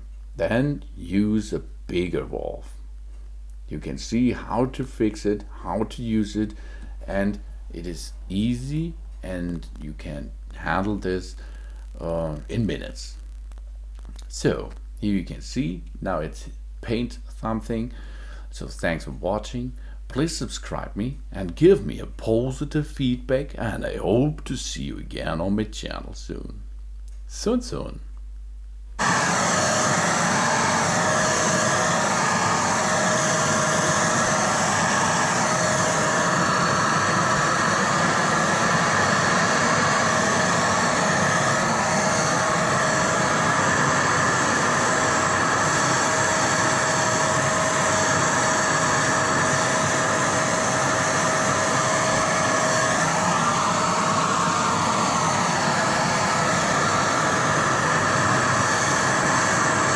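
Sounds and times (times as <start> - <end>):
electric paint sprayer whining: 29.0 - 59.9.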